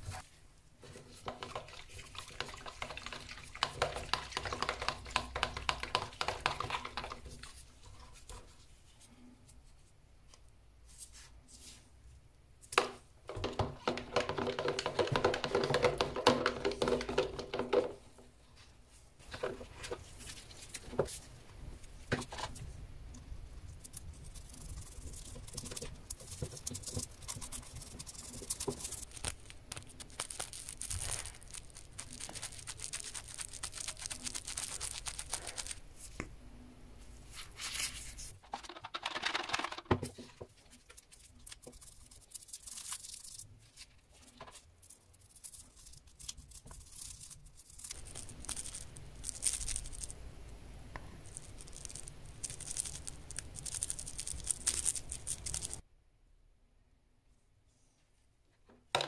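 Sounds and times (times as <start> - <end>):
brush scrubbing in soapy water: 0.0 - 8.3.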